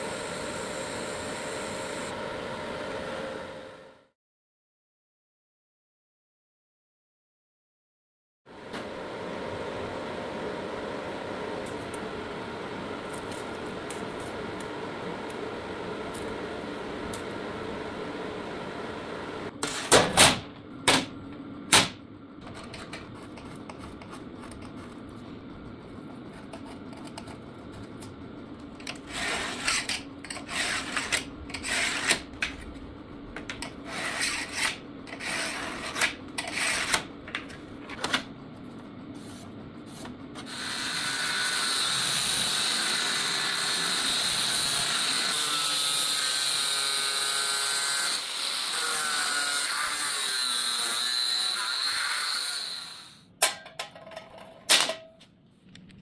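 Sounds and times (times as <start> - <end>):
angle grinder cutting steel: 40.5 - 53.3.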